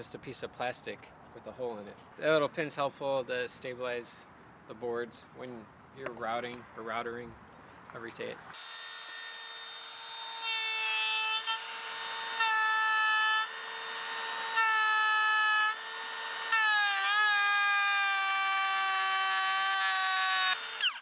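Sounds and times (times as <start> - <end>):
router bit cutting wood: 8.6 - 21.0
router motor whining: 8.6 - 21.0.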